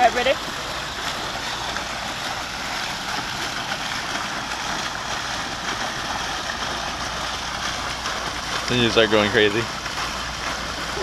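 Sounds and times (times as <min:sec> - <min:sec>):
fountain splashing into pond: 0:00.0 - 0:11.0.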